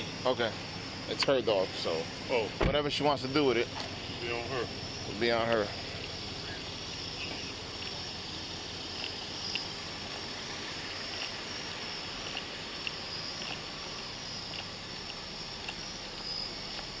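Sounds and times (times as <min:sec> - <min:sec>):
insect chirps: 0:00.0 - 0:17.0
low steady hiss: 0:00.0 - 0:17.0
night insects chorus: 0:00.0 - 0:17.0.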